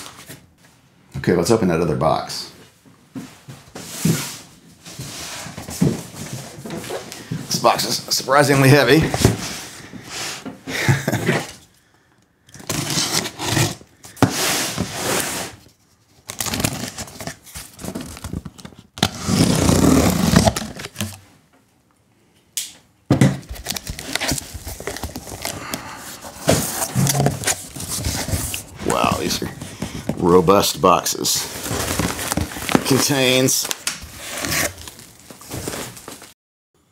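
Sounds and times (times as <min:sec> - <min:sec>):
packing tape tearing: 0:12.5 - 0:13.8, 0:19.0 - 0:21.2, 0:23.5 - 0:25.8, 0:31.6 - 0:36.3
cardboard box scraping on table: 0:19.1 - 0:20.9.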